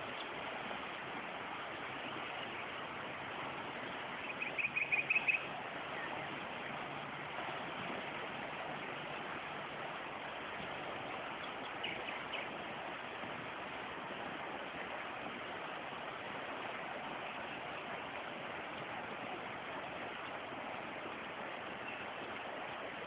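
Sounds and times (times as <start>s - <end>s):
fast-flowing river rushing: 0.0s - 23.0s.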